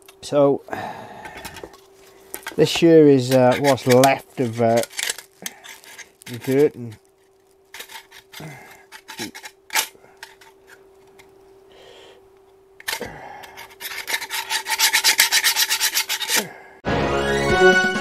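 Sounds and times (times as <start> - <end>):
stiff brush scrubbing: 1.2 - 7.0, 13.6 - 16.5.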